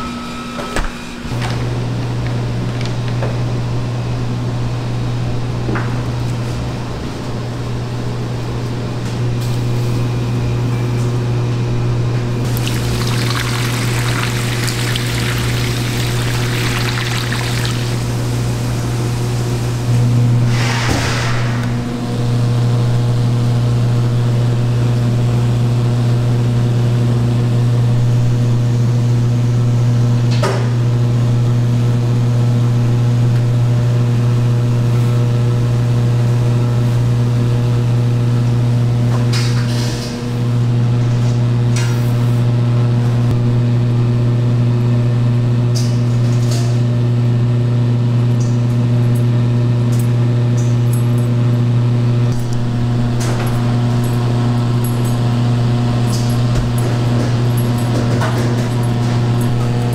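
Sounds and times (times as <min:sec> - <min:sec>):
low machine hum: 0:00.0 - 0:20.6, 0:21.4 - 0:59.9
water pouring into a metal bowl: 0:12.5 - 0:18.4.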